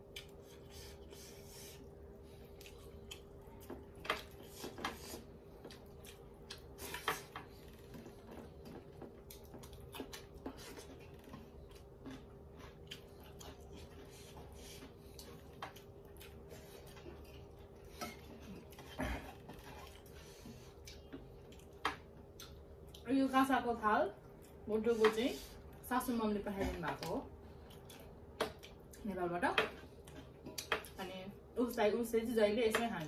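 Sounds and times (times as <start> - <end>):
chewing: 0.0 - 23.1, 26.6 - 29.0.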